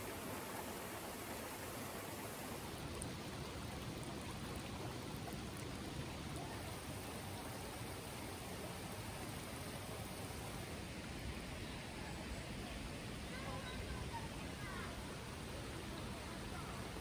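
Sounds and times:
river water rushing: 0.0 - 11.6.

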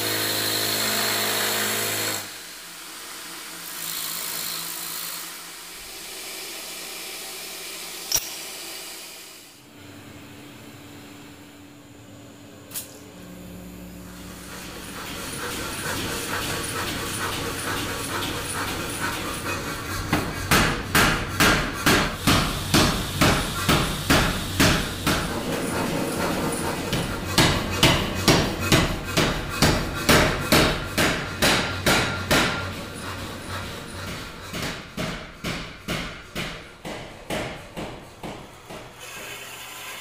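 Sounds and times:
steady running machine noise: 1.9 - 40.0
power hammer striking hot metal: 14.5 - 39.0.

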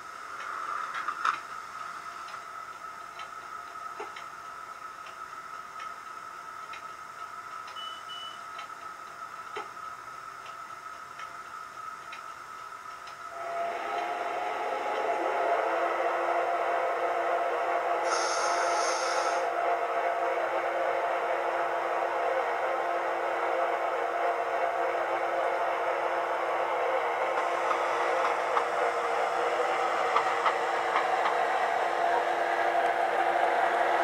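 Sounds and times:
low fuller hum: 0.0 - 34.0
light ticks: 0.4 - 13.3.

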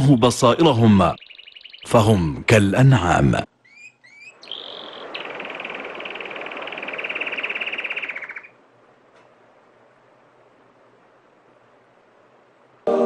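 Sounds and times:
bird chirp and trill: 0.0 - 2.3, 3.5 - 8.6.

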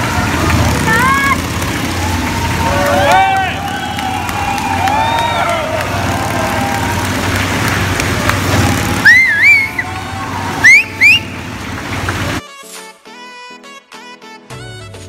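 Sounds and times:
motorcycle engine running: 0.0 - 12.4
shrill whistles: 2.3 - 7.0, 9.0 - 11.5
music: 12.4 - 15.0.

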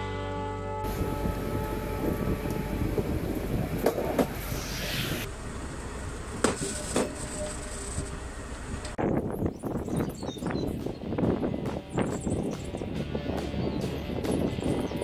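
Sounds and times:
background music: 0.0 - 3.4
track machine engine rumble: 0.8 - 9.6.

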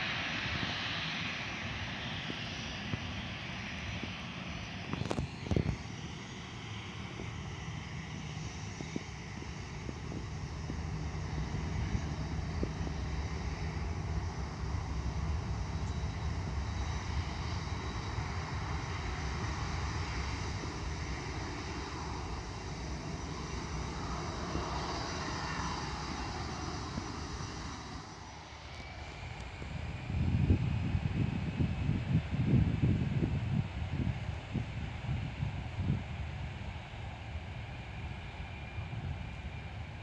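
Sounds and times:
jet engines whining: 0.0 - 40.0
wind buffeting microphone: 0.2 - 40.0.

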